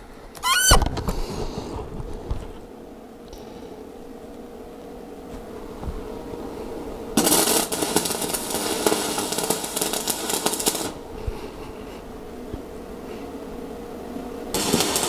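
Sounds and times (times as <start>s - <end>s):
arc welding crackle: 7.2s - 12.6s, 14.4s - 15.0s.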